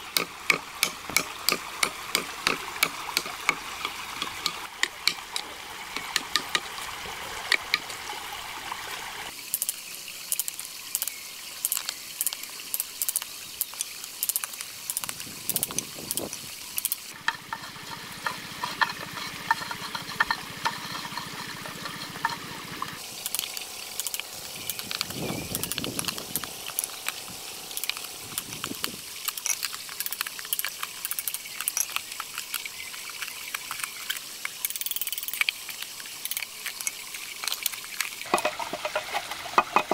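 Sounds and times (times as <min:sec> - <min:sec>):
knife tapped into bamboo with stick: 0:00.2 - 0:06.7
bamboo cracking: 0:23.2 - 0:34.7.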